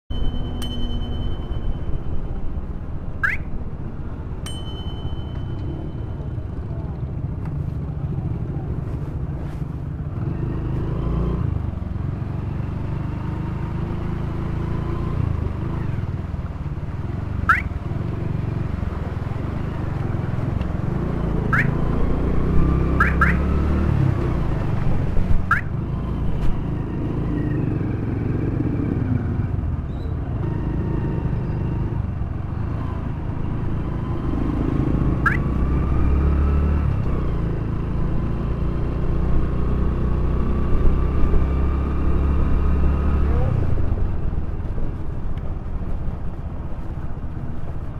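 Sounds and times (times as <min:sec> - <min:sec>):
high rising chirps: 0:35.2 - 0:35.5.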